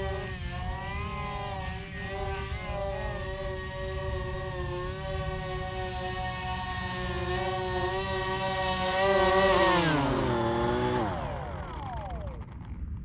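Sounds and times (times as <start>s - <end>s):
model plane motors whining: 0.0s - 12.8s.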